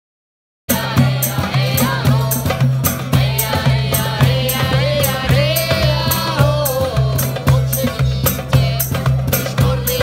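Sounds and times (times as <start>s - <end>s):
hand drums beating: 0.7s - 10.0s
strummed acoustic guitars: 0.7s - 10.0s
person singing: 3.4s - 10.0s.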